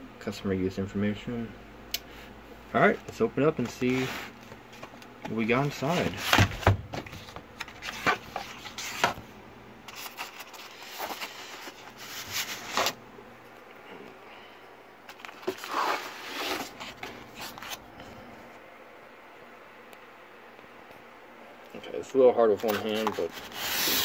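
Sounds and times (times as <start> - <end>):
styrofoam scraping against cardboard: 15.4 - 17.6, 22.6 - 24.0.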